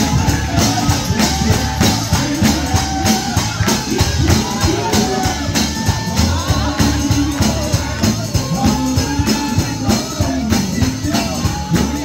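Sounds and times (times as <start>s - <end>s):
live gospel song: 0.0s - 12.0s
low bass notes: 0.0s - 12.0s
person singing: 0.0s - 12.0s
tambourine: 0.0s - 12.0s.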